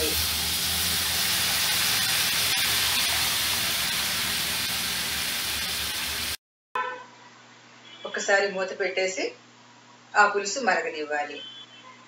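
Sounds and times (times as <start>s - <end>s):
liquid sizzling in hot oil: 0.0s - 6.4s.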